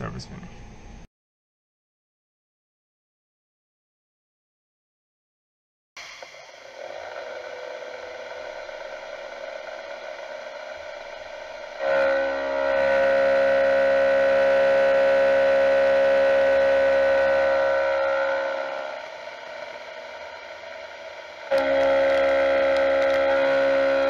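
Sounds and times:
mill spindle running: 0:06.0 - 0:24.0
milling cutter ringing on metal: 0:06.0 - 0:24.0.

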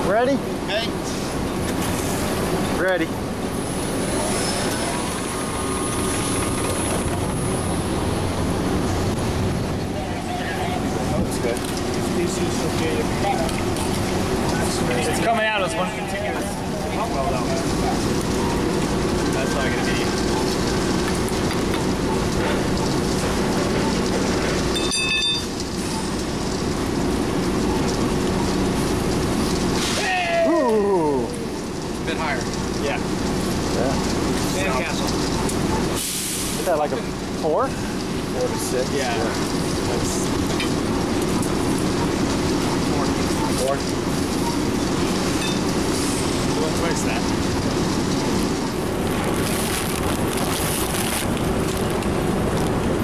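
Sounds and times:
pump-mixer droning: 0:00.0 - 0:53.0
high beep: 0:24.8 - 0:25.5, 0:45.4 - 0:45.6.

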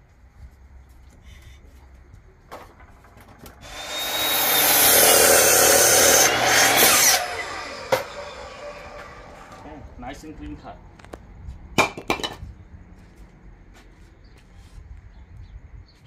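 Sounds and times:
miter saw cutting wood: 0:03.6 - 0:09.9.

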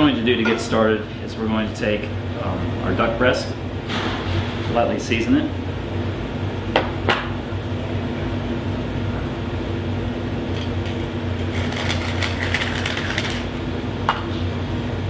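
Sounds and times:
low mechanical hum: 0:00.0 - 0:15.0
pepper mill grinding: 0:11.5 - 0:13.5.

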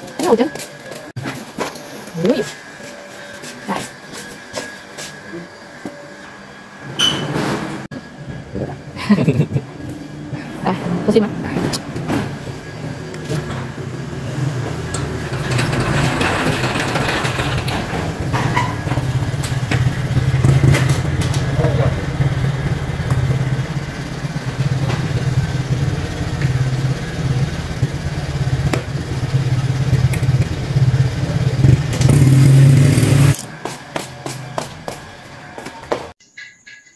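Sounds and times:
motorcycle engine idling and revving: 0:10.5 - 0:36.2.

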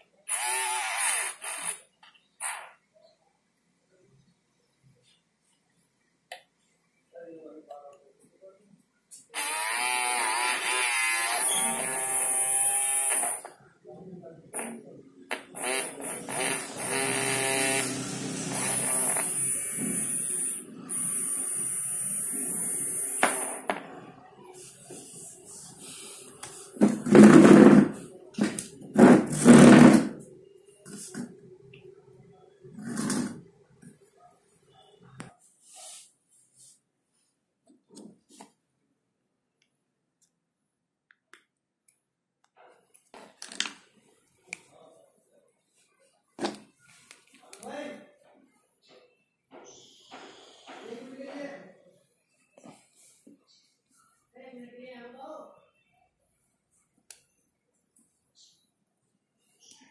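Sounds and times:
toy motor whining: 0:00.3 - 0:01.8, 0:09.4 - 0:13.5, 0:15.6 - 0:23.6.

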